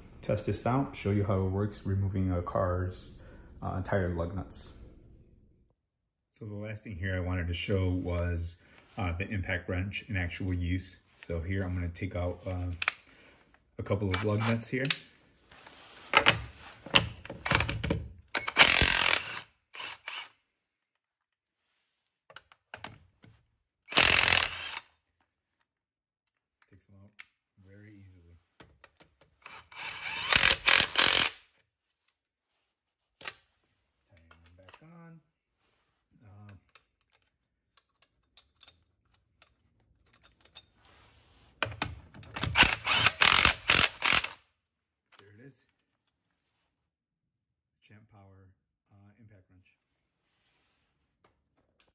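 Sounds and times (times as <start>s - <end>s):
impact wrench clatter: 17.4s - 20.3s, 23.9s - 24.8s, 29.4s - 31.4s, 42.4s - 44.4s.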